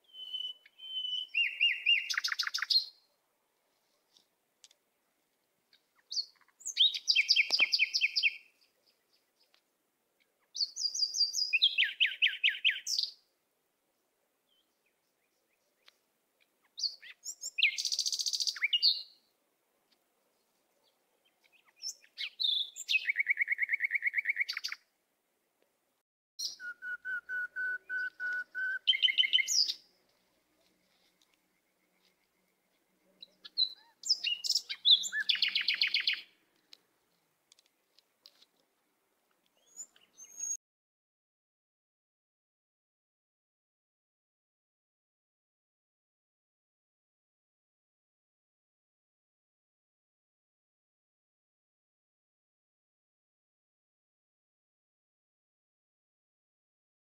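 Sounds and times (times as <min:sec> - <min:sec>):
songbird singing fast trills: 0:00.0 - 0:03.1, 0:06.0 - 0:09.6, 0:10.5 - 0:13.2, 0:16.7 - 0:19.2, 0:21.2 - 0:24.8, 0:26.4 - 0:29.9, 0:31.3 - 0:36.4, 0:39.6 - 0:40.6.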